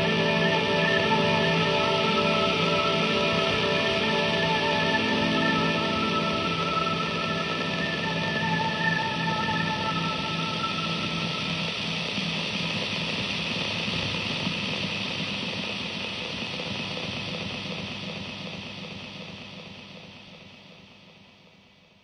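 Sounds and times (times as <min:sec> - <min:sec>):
synthesized noise wash: 0:00.0 - 0:15.5.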